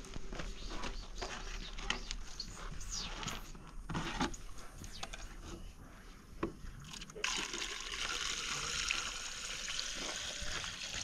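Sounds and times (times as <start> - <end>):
water pouring from a jug: 6.8 - 11.0.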